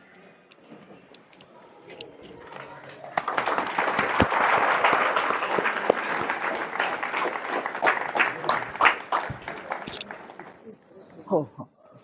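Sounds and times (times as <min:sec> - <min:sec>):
audience applauding: 0:03.1 - 0:10.7.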